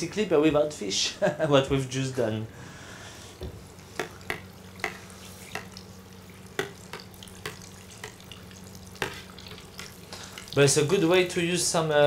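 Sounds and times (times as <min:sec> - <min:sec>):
low steady hum: 0:00.0 - 0:12.0
food deep-frying in oil: 0:03.6 - 0:11.8.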